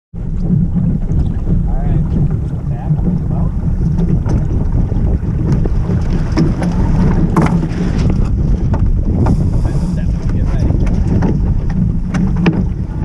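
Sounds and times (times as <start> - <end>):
knocks and clicks of rigging: 0.2 - 13.0
wind buffeting microphone: 0.2 - 13.0.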